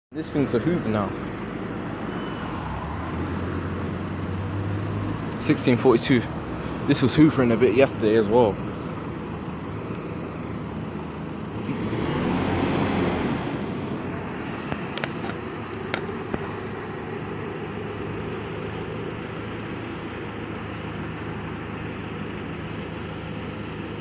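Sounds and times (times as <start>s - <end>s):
bus engine hum: 0.2s - 24.0s
engine cooling fan whirring: 0.2s - 24.0s.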